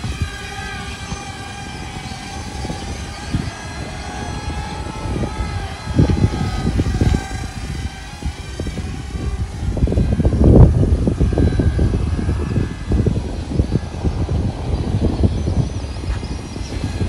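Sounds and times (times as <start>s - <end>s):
electric motor whining: 0.0s - 17.0s
wind rumbling on microphone: 0.0s - 17.0s.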